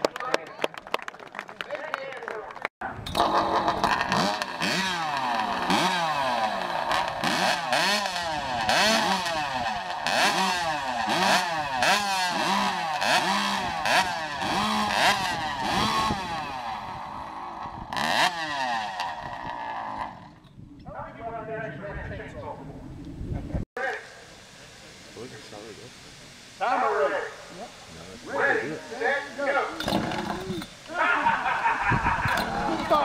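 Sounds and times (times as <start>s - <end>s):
chainsaw cutting through log: 3.2s - 20.4s.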